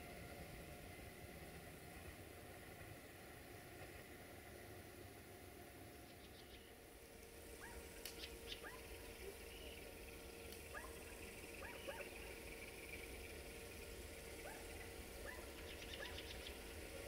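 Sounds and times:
faint animal calls: 10.7s - 13.2s, 14.3s - 17.0s.

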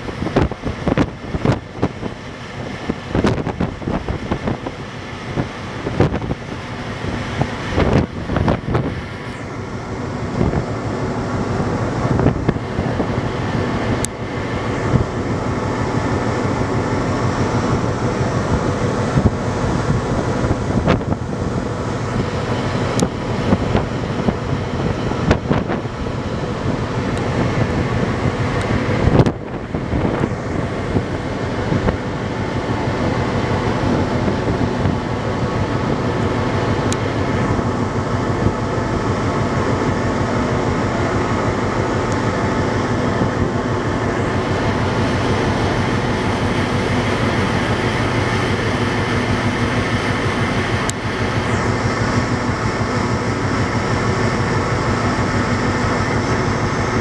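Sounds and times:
ferry engines rumbling: 0.0s - 57.0s
wind on microphone: 0.0s - 57.0s.

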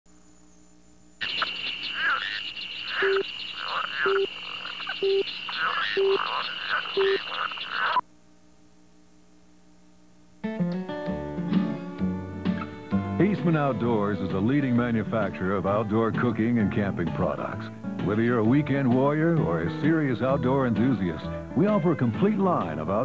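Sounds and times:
frogs croaking and chirping: 1.2s - 8.0s
music: 10.4s - 23.0s.

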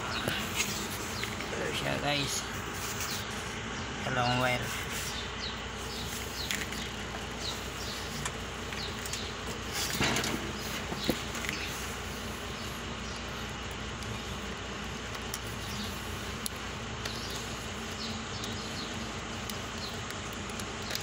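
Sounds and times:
steady background buzz: 0.0s - 21.0s.

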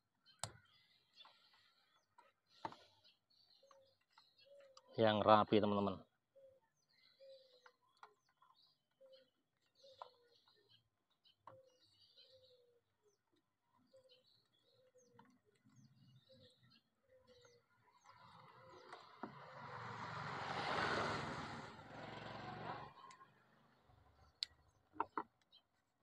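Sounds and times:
bird chirps: 0.2s - 19.8s
vehicle passing by: 18.1s - 23.7s.

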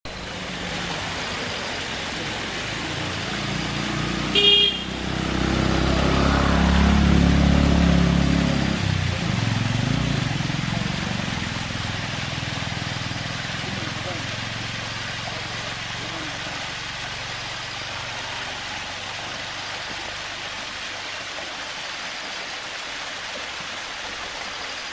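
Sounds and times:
vehicle engine rumble passing: 0.1s - 21.5s
small waterfall over rocks: 0.1s - 24.9s
vehicle horn toot: 4.3s - 5.0s.

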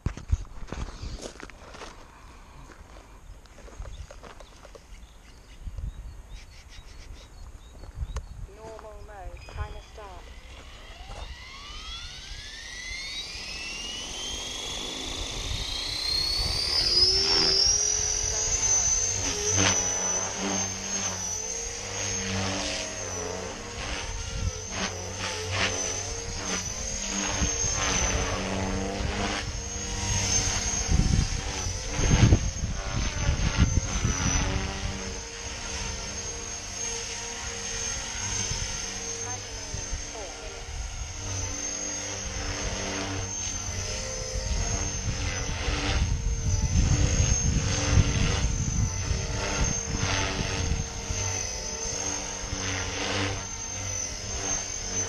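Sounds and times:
electric motor whine: 0.0s - 55.0s
rotor whir: 0.0s - 55.0s
wind buffeting microphone: 7.3s - 10.2s, 23.6s - 36.1s, 43.8s - 51.4s.

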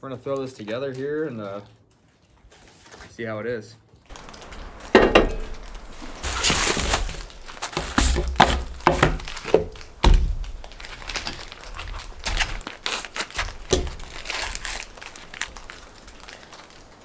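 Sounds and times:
plates and cookware clattering: 4.9s - 5.6s.

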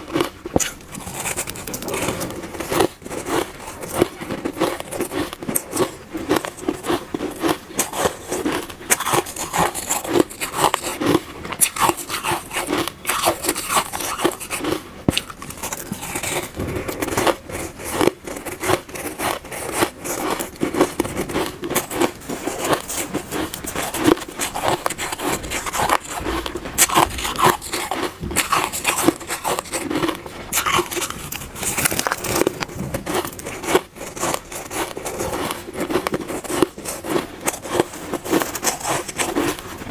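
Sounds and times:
chewing crunchy shaved ice: 0.0s - 39.9s.

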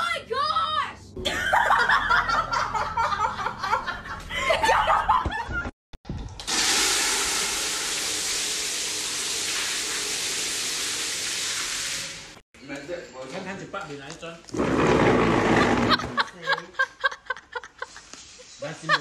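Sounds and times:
people laughing: 1.2s - 5.7s, 15.5s - 19.0s
water spraying hard: 6.4s - 12.4s.

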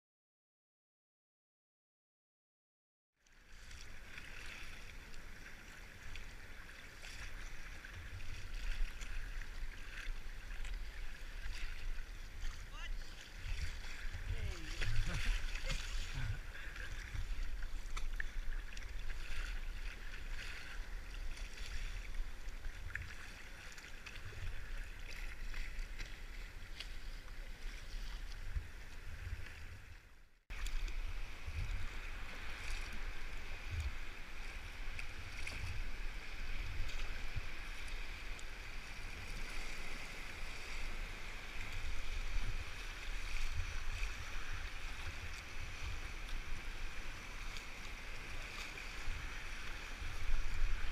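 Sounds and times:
water sloshing against kayak hull: 3.2s - 50.9s
wind rumble on microphone: 24.1s - 50.9s.

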